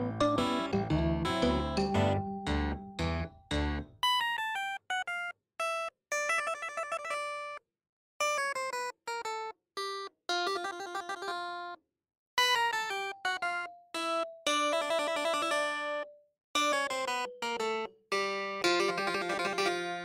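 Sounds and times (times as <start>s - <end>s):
bright keyboard melody: 0.0s - 4.3s, 12.8s - 20.0s.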